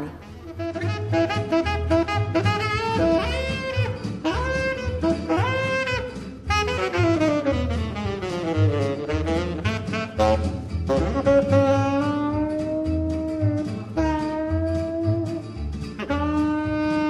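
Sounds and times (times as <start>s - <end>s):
steady low beat: 0.6s - 15.4s.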